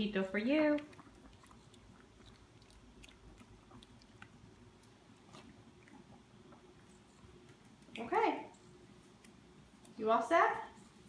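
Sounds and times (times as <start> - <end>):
dog chewing food: 0.6 - 8.0.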